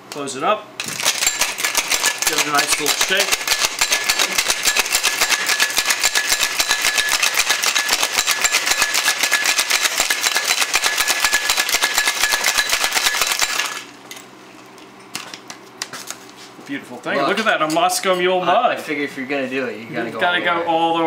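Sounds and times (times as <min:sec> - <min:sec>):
ice rattling in cocktail shaker: 0:00.8 - 0:13.9.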